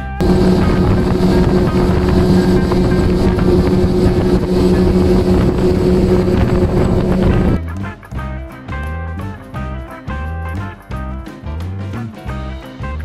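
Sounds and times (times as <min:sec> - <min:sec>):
outboard motor running fast: 0:00.0 - 0:07.6
water rushing off hull: 0:00.2 - 0:07.6.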